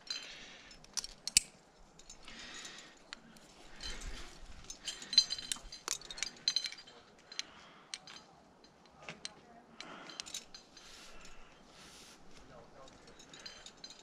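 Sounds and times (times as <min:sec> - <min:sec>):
metal climbing gear clinking: 0:00.0 - 0:14.0.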